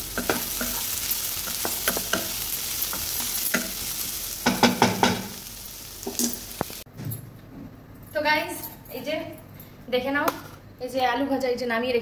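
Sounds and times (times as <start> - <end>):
vegetables sizzling in oil: 0.0 - 6.9.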